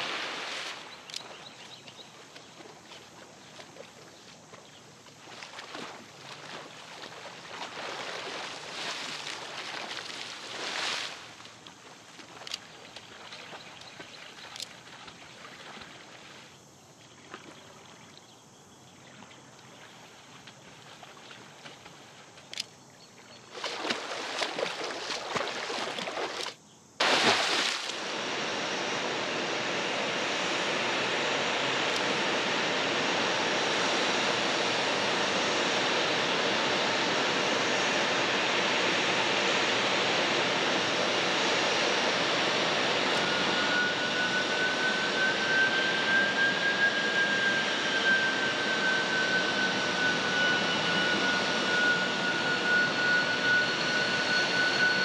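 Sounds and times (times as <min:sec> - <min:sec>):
rushing hiss of water: 0:00.0 - 0:01.0, 0:07.6 - 0:11.6, 0:27.0 - 0:28.5
water splashing and lapping: 0:00.0 - 0:18.3, 0:19.1 - 0:22.7, 0:23.4 - 0:28.1.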